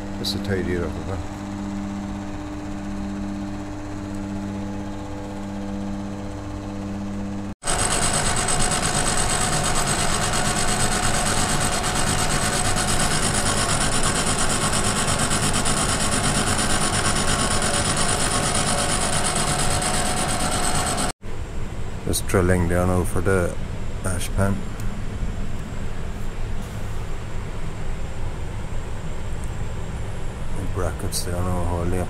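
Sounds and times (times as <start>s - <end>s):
metal lathe humming: 0.0s - 21.1s
milling machine cutting with whine: 0.0s - 21.1s.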